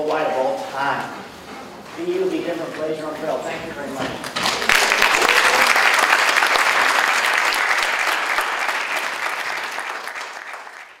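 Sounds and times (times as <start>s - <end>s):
audience applauding: 4.2s - 11.0s.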